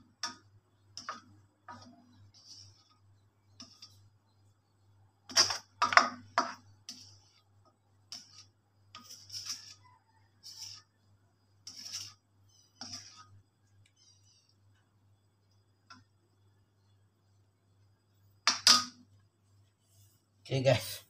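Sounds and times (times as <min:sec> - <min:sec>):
spoon scraping a wok: 0:01.0 - 0:04.1, 0:05.3 - 0:14.6.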